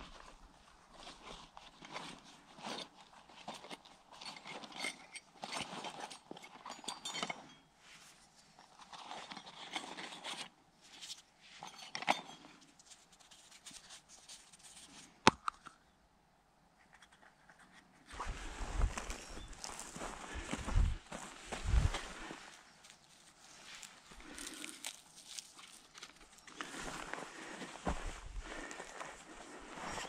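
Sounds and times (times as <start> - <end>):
rustling of nylon pouch: 21.4 - 27.0.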